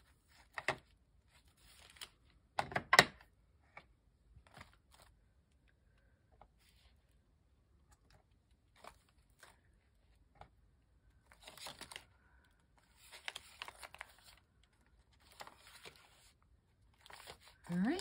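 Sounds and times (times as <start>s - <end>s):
paper pages turning: 0.1s - 2.4s, 3.7s - 5.2s, 7.9s - 18.0s.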